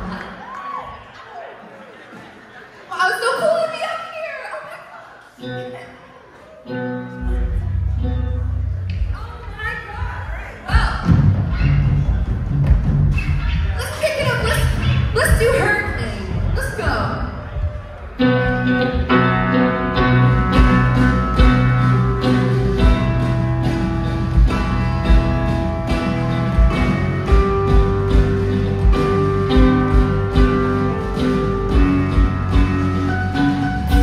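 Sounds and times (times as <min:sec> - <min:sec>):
live rock band playing: 0:06.7 - 0:34.0
steady drum beat: 0:10.6 - 0:17.1, 0:20.5 - 0:34.0.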